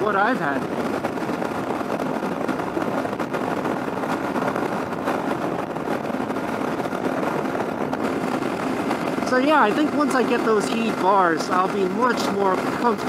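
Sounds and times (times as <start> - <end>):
motorcycle engine running: 0.0 - 13.0
wind and road noise: 0.0 - 13.0.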